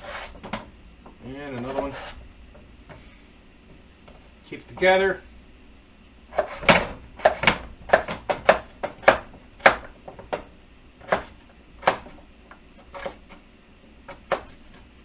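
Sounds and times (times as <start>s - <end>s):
knife chopping on cutting board: 6.3s - 10.4s, 11.0s - 12.2s, 14.1s - 14.6s.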